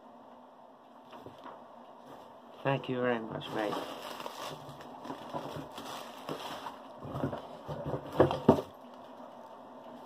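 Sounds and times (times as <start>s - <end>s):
parcel unpacking handling noises: 3.4s - 10.0s.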